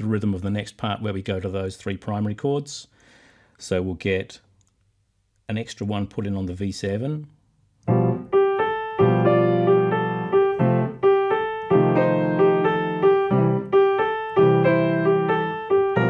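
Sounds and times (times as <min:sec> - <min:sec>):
blues piano chords: 0:07.8 - 0:16.0.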